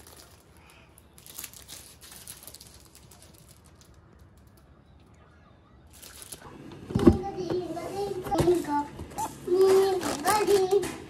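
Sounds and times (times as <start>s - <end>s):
faint clicks and rustles: 0.0s - 5.3s.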